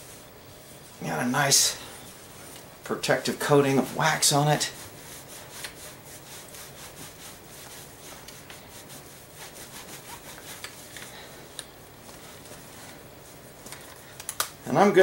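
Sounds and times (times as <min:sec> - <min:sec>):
cloth rubbing wood and metal: 0:00.0 - 0:11.3.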